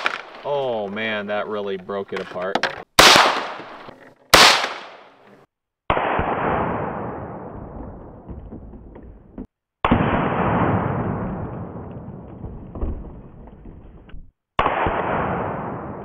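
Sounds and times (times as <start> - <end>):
rifle shot crack: 0.0 - 0.4, 3.0 - 5.1, 5.9 - 7.6, 9.8 - 11.9, 14.6 - 16.0.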